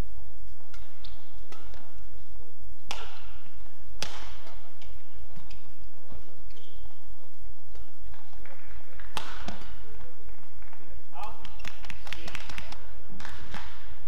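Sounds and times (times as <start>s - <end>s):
steady low hum: 0.0s - 11.6s
rackets hitting shuttlecock: 0.5s - 7.0s, 7.6s - 14.0s
shoe squeaks on court floor: 5.4s - 7.2s.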